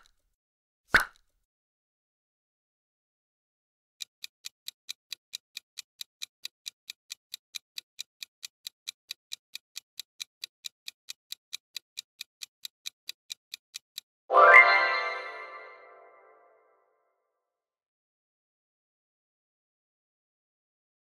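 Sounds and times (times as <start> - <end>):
clock ticking: 4.0 - 14.1.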